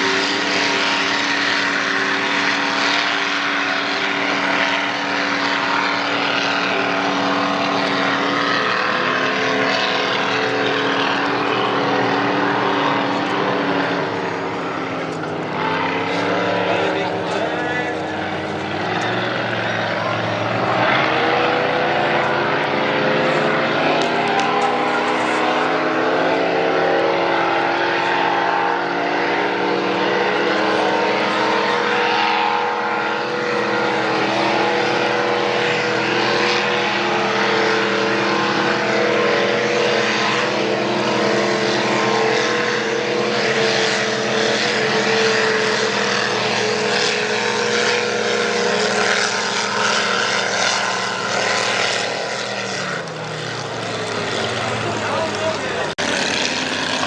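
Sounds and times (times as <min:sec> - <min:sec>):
racing boat engines droning: 0:00.0 - 0:57.0.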